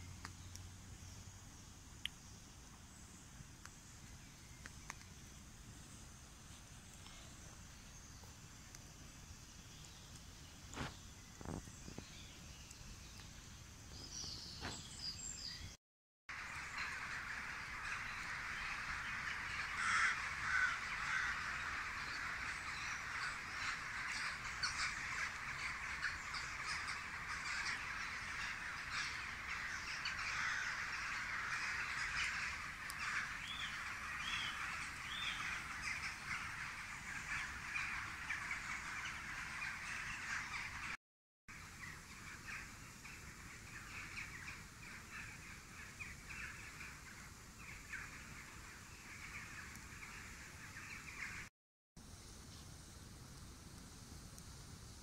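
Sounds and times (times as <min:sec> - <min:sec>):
faint clicks: 0:00.2 - 0:00.7, 0:02.0 - 0:02.8, 0:04.6 - 0:05.2
crows cawing: 0:16.4 - 0:40.8.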